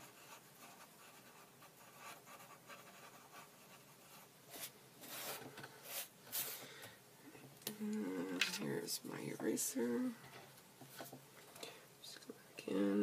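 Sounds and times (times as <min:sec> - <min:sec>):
pencil scratching on paper: 0:00.0 - 0:06.5.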